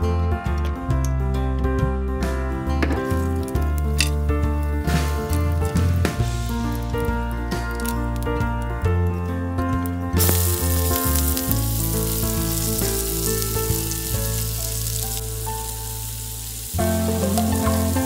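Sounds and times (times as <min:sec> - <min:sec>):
onions sizzling in hot oil: 0:10.2 - 0:18.0.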